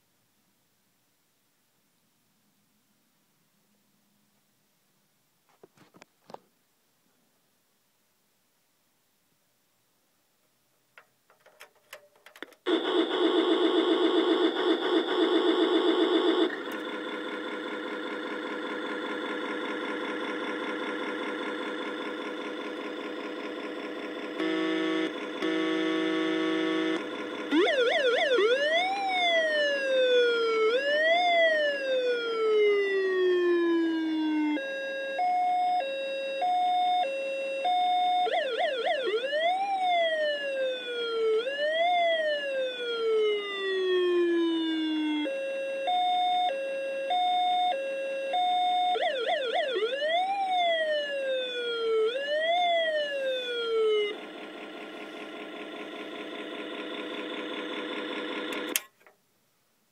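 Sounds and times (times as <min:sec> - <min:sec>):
steady buzzing tone: 0:12.7 - 0:27.9
toy electronic siren: 0:12.7 - 0:54.5.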